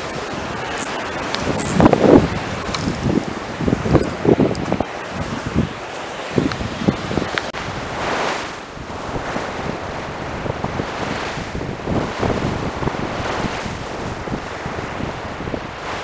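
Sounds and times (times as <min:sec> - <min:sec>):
surf washing onto beach: 0:00.0 - 0:16.0
wind buffeting microphone: 0:00.0 - 0:16.0.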